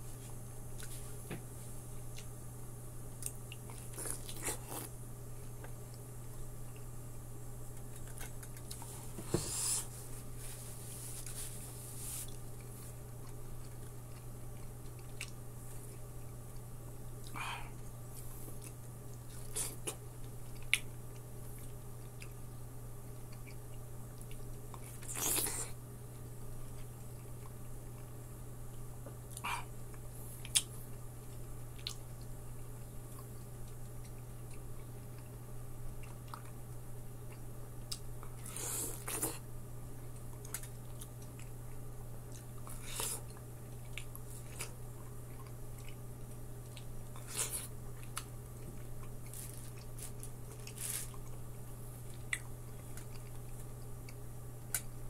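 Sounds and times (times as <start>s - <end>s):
steady low hum: 0.0s - 55.0s
biting and chewing melon: 3.2s - 6.0s, 40.1s - 55.0s.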